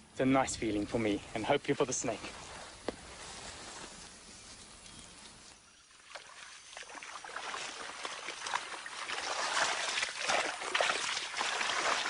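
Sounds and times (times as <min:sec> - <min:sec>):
water splashing and sloshing: 0:05.8 - 0:12.0.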